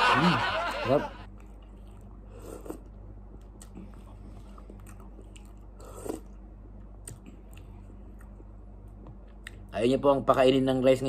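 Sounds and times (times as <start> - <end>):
person chewing: 1.4 - 8.5.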